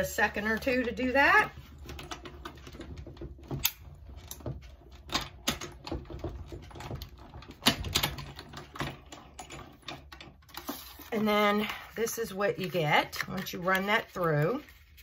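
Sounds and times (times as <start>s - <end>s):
hand-cranked die-cutting machine clicking: 1.8s - 10.7s.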